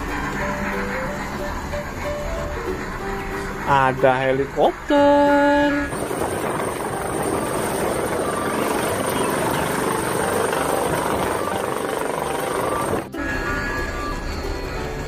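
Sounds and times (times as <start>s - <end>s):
high steady whine: 0.0s - 14.6s
helicopter rotor and engine: 4.3s - 13.2s.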